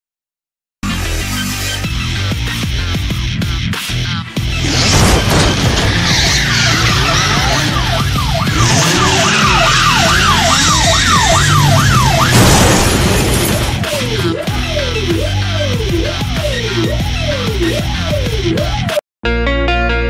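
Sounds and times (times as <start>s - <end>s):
electronic music with heavy bass: 0.8s - 12.3s, 13.5s - 19.0s
siren-like wail: 5.3s - 18.7s.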